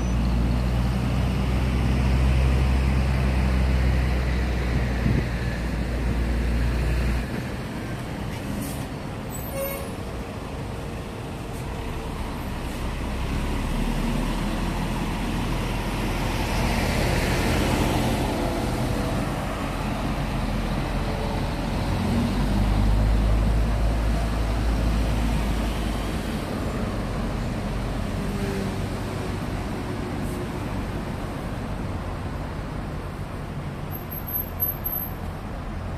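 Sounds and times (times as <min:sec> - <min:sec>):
city road traffic: 0:00.0 - 0:35.9.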